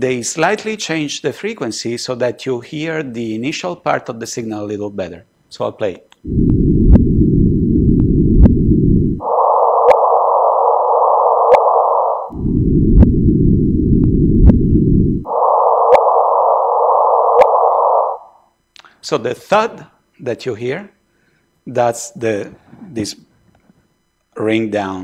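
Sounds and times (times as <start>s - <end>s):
rising whoosh: 6.3s - 18.3s.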